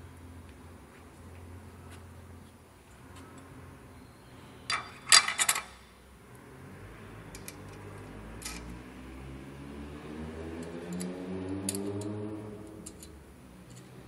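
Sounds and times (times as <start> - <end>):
metal parts clattering: 4.7 - 5.8
light metal clicks: 10.6 - 14.0.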